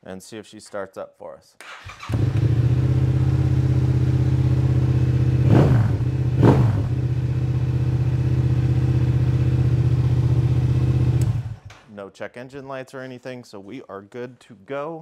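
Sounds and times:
engine throttle blips: 2.0s - 11.7s
motorcycle engine idling: 2.1s - 11.6s.

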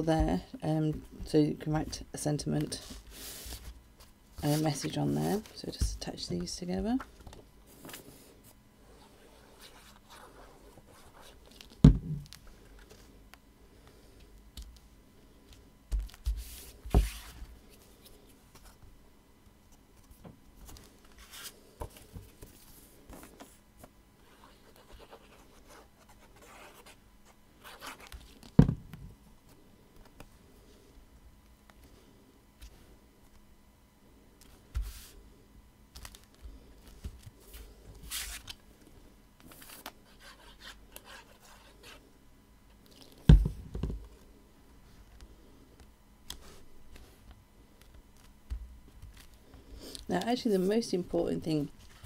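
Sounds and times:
card rustling and scraping: 27.6s - 28.5s, 39.4s - 42.0s.

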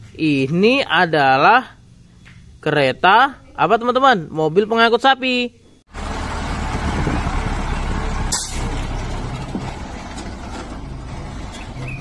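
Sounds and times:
diesel truck engine rumble: 5.9s - 12.0s.

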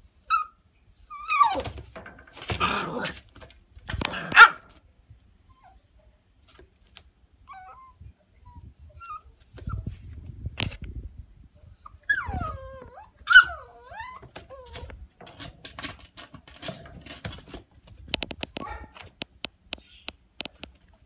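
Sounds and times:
puppy whining: 0.2s - 1.8s, 7.4s - 9.9s, 11.7s - 15.0s.

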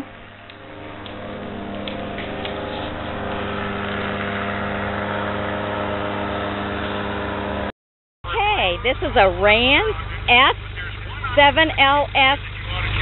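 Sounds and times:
engine humming: 0.0s - 7.7s, 8.3s - 13.0s
rushing noise: 0.0s - 7.7s.

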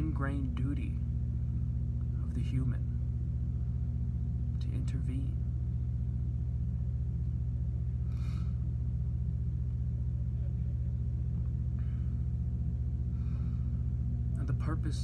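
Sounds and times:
low electrical hum: 0.0s - 15.0s
soft breath: 8.0s - 8.7s, 13.0s - 14.0s.

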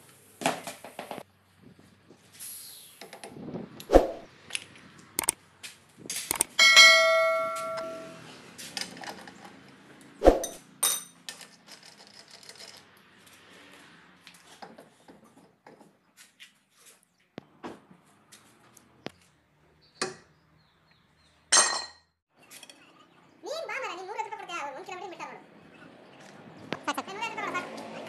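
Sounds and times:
hammer striking metal: 6.6s - 8.2s.

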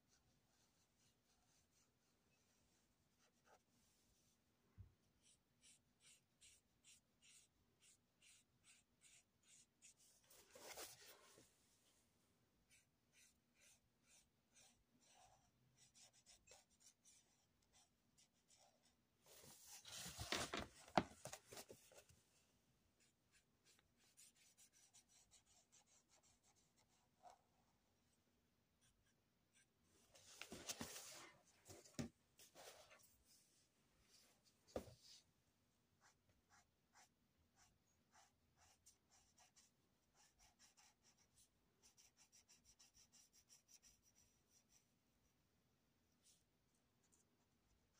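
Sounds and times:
marker rubbing on paper: 5.2s - 10.9s, 12.7s - 18.9s, 36.0s - 44.8s
marker scratching on paper: 5.2s - 11.0s, 12.6s - 19.0s, 23.0s - 27.4s, 36.0s - 44.8s.

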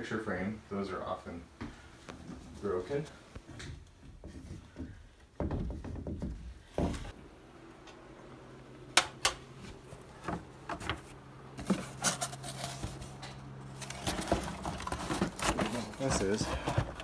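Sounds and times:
cardboard box being handled: 13.8s - 17.0s.

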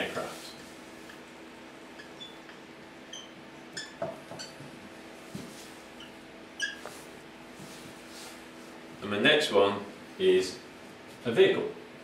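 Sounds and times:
marker squeaking on whiteboard: 1.9s - 4.6s, 5.9s - 7.1s.

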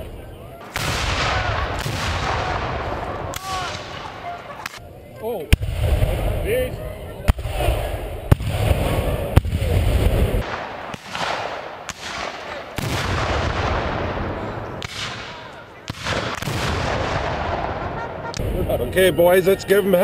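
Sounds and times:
cannon booms with echo: 0.7s - 4.1s, 5.5s - 6.4s, 7.3s - 18.0s.

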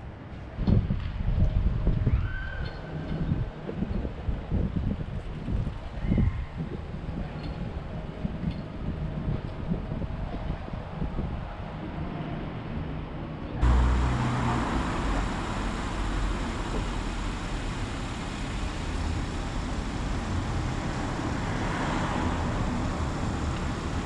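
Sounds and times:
cars going by: 13.6s - 24.0s.

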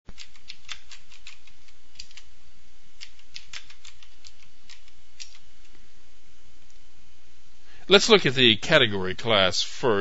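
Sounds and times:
computer keyboard keystrokes: 0.1s - 2.3s, 3.0s - 5.4s
steady low hum: 0.1s - 10.0s.

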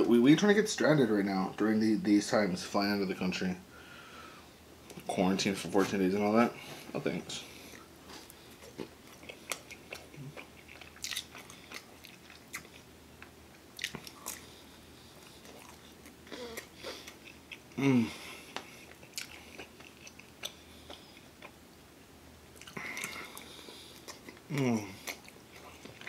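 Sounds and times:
chewing with wet mouth clicks: 7.7s - 14.6s, 18.5s - 21.6s, 22.6s - 26.0s
person humming: 17.8s - 18.2s, 24.5s - 25.0s.

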